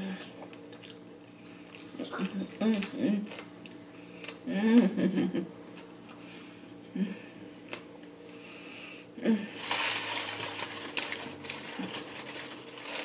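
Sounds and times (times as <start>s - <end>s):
paper wrapper crinkling: 9.6s - 13.0s.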